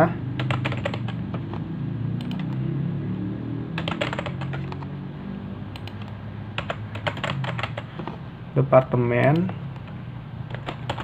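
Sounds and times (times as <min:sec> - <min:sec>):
typing on computer keyboard: 0:00.4 - 0:01.5, 0:02.2 - 0:02.6, 0:03.8 - 0:04.9, 0:05.7 - 0:08.0, 0:09.3 - 0:11.0.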